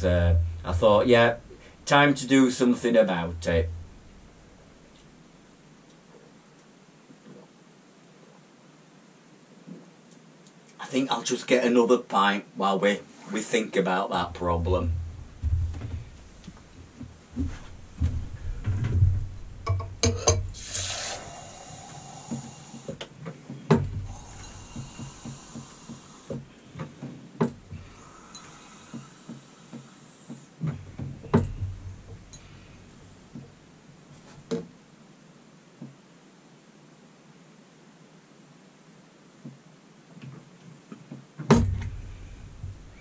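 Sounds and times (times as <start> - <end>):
knocks and bumps: 0.0 - 5.0, 14.3 - 20.6, 23.5 - 28.0, 30.6 - 33.6, 41.4 - 43.0
beer pump knocking: 17.0 - 20.7
beer hissing and frothing into glass: 20.5 - 23.0, 24.1 - 26.4, 27.8 - 30.5.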